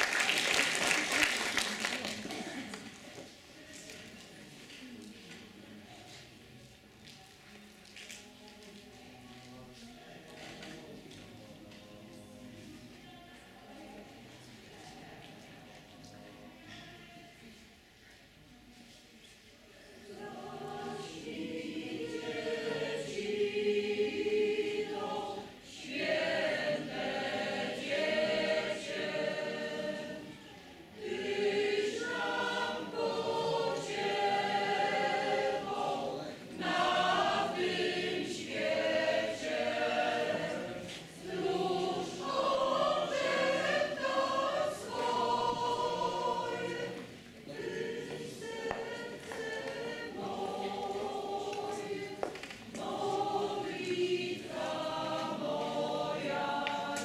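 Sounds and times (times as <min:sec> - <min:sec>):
mixed choir singing: 0:19.8 - 0:57.0.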